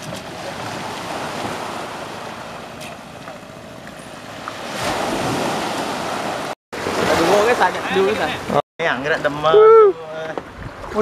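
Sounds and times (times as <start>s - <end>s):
small waves sloshing: 0.0s - 8.6s
wind on microphone: 10.4s - 11.0s.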